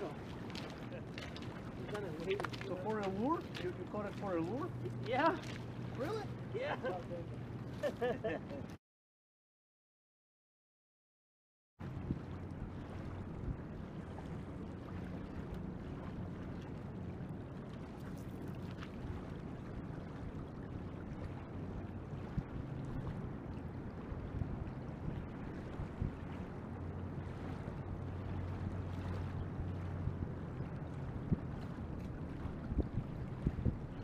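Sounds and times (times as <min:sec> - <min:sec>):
rushing river water: 0:00.0 - 0:08.1
wind buffeting microphone: 0:11.8 - 0:34.0.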